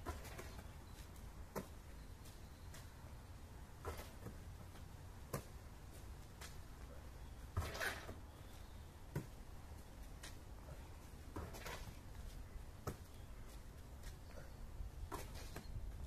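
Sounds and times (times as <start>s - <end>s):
basketball thuds and slaps: 3.8s - 4.4s.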